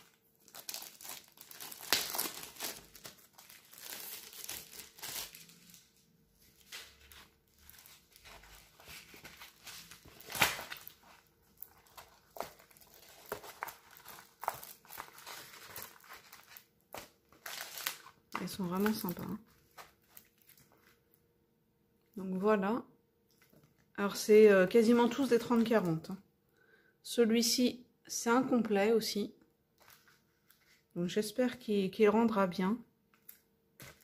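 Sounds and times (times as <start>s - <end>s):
plastic wrapping crinkling: 0.0s - 21.0s.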